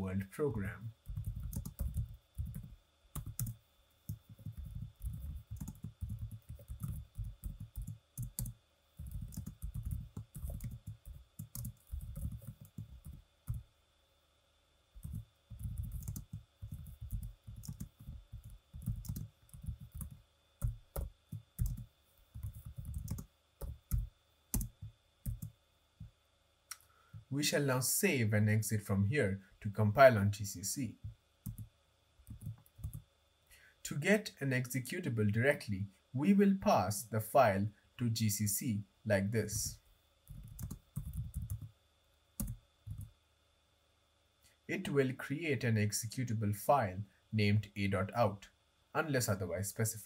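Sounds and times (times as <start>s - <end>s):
computer keyboard typing: 1.0s - 13.6s, 15.0s - 25.5s, 31.4s - 31.7s, 32.3s - 33.0s, 40.3s - 41.7s, 42.4s - 43.1s.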